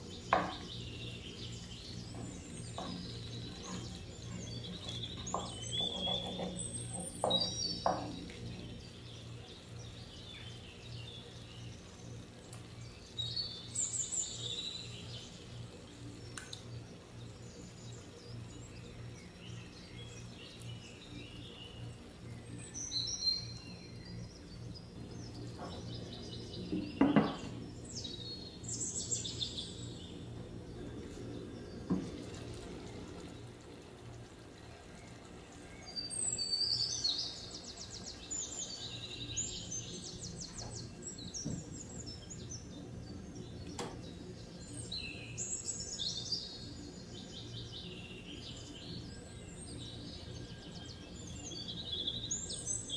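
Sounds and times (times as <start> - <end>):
small birds chirping: 0.0 - 52.9
steady low hum: 0.0 - 52.9
light knocks: 0.3 - 0.7, 7.2 - 8.3, 26.7 - 27.6.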